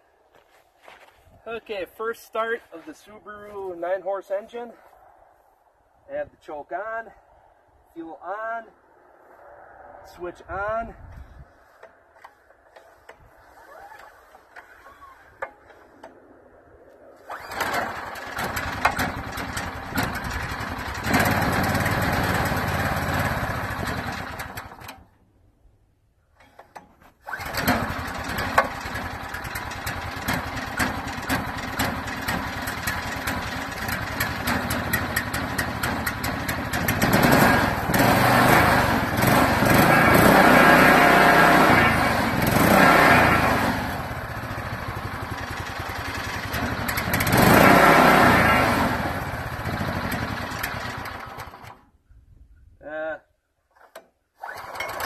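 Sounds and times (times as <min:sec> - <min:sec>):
small engine running unevenly: 0:11.6 - 0:16.1, 0:17.2 - 0:25.0, 0:26.5 - 0:51.9, 0:54.4 - 0:55.0.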